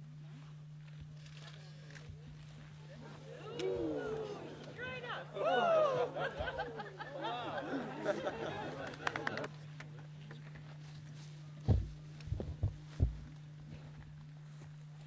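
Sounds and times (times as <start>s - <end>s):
steady low hum: 0.0s - 15.0s
murmur of voices: 1.2s - 9.6s
dull low thumps: 11.6s - 14.2s.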